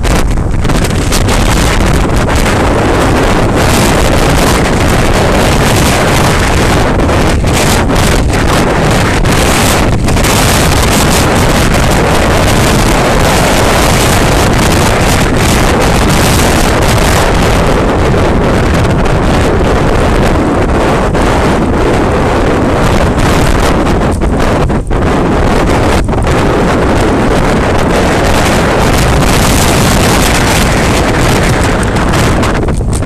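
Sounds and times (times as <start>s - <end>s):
wind buffeting camera microphone: 0.0s - 33.0s.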